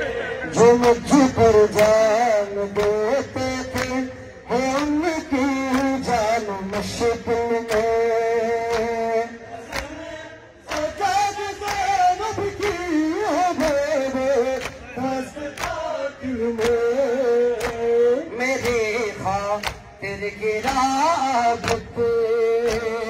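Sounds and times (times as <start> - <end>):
men singing mournful notes: 0.0 - 23.0
hands slapping chests: 0.8 - 2.0, 2.8 - 4.0, 6.7 - 9.1, 9.7 - 10.0, 10.7 - 23.0.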